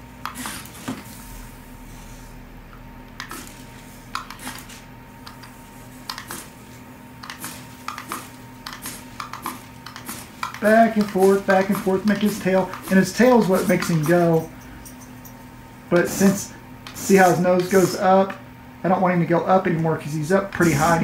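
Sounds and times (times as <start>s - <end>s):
faint steady hum: 0.0s - 21.0s
remote control buttons clicking: 4.1s - 4.4s, 5.2s - 6.3s, 7.2s - 14.2s.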